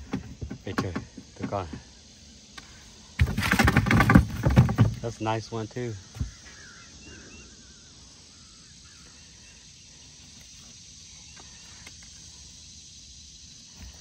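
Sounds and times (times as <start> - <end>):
low outdoor background: 0.0 - 14.0
faint bird chirps: 5.7 - 12.7.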